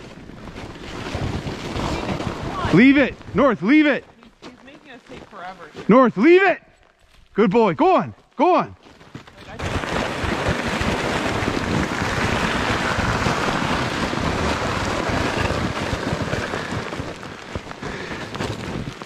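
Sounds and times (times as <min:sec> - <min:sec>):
toboggan rushing over icy snow: 0:00.0 - 0:06.5, 0:07.4 - 0:19.0
wind buffeting microphone: 0:09.6 - 0:19.0.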